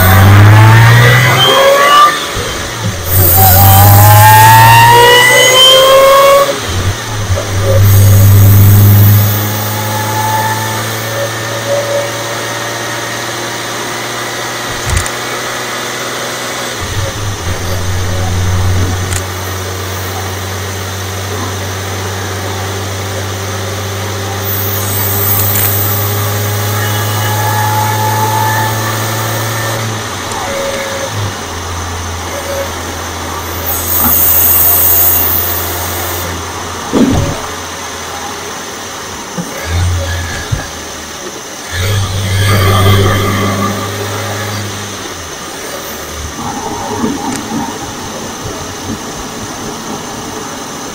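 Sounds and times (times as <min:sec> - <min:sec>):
car engine low drone: 0:00.0 - 0:50.9
supercharger whine: 0:00.0 - 0:50.9
rushing intake hiss: 0:31.2 - 0:36.9.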